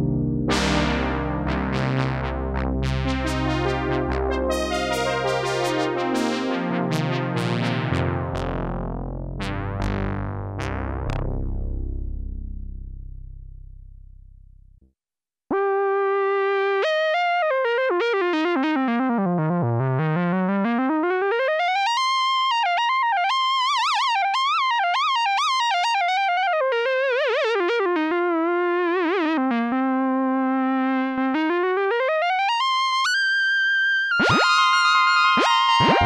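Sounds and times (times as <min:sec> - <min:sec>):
gliding synthesizer lead: 0:00.0 - 0:12.6, 0:34.1 - 0:36.0
synthesizer chords: 0:00.0 - 0:14.4, 0:34.1 - 0:36.0.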